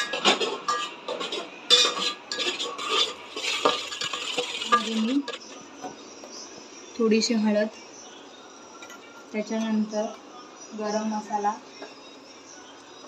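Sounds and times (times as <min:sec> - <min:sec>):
spoon clinking against pot: 0:00.0 - 0:05.6
spoon stirring thick paste: 0:02.3 - 0:05.6.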